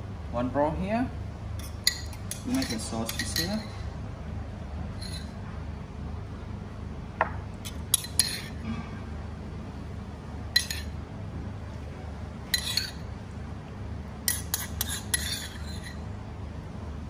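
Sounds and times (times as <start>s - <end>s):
metal spoon clinking ceramic bowl: 1.6s - 3.7s, 7.6s - 8.6s, 10.5s - 11.0s, 12.5s - 13.0s.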